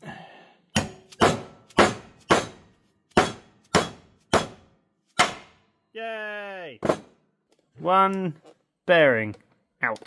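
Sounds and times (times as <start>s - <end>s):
hammer striking metal: 0.7s - 5.7s.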